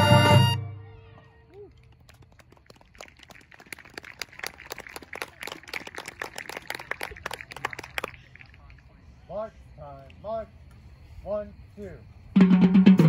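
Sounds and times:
audience clapping: 0:01.5 - 0:09.0.

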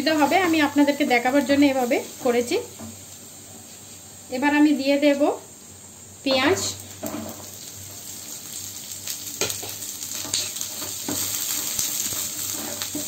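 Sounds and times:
onions sizzling in frying pan: 0:00.0 - 0:13.0
wooden spatula scraping pan: 0:12.0 - 0:13.0.

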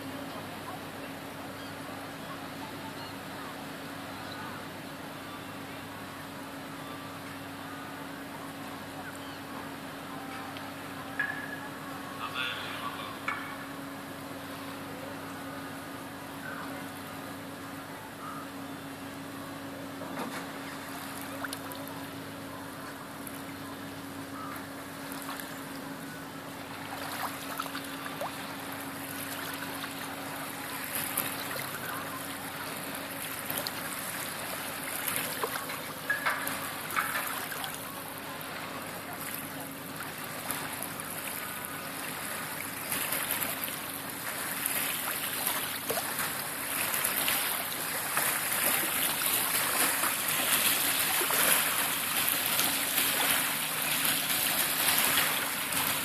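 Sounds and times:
waves lapping on sandy shore: 0:26.6 - 0:56.0.

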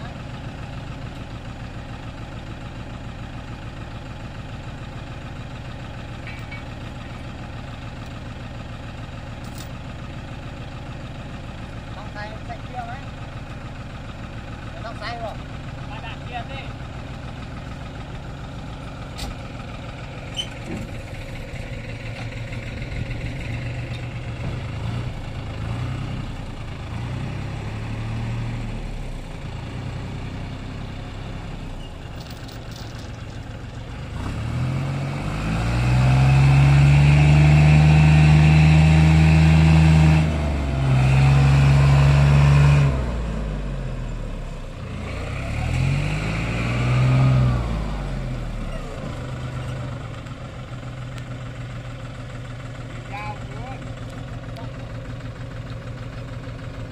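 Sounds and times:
vehicle engine revving: 0:20.3 - 0:31.6, 0:33.9 - 0:51.7.

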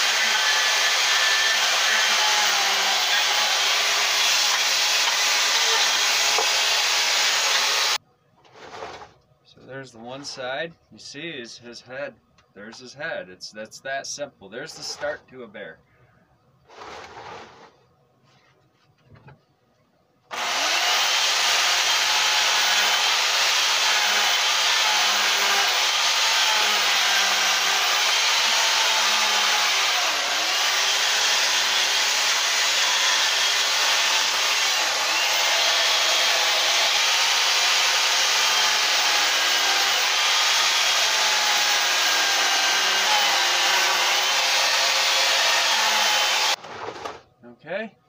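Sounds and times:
electric chainsaw cutting wood: 0:00.0 - 0:08.0, 0:20.3 - 0:47.2.

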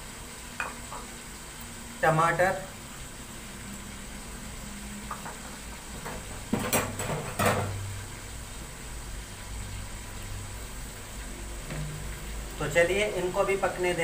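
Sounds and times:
knocks and rattles on metal pan: 0:05.2 - 0:07.8.

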